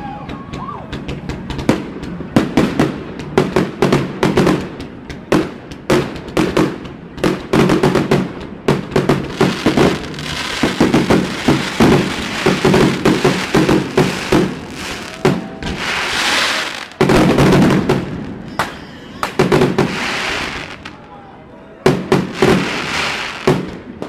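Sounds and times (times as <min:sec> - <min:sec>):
fireworks bangs and crackles: 0:00.0 - 0:21.0, 0:21.8 - 0:24.0
rushing hiss: 0:09.4 - 0:17.0.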